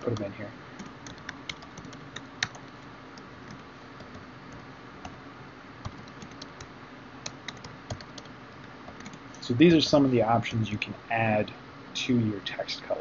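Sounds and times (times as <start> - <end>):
keyboard typing: 0.0 - 5.2, 5.8 - 8.3, 8.9 - 9.3.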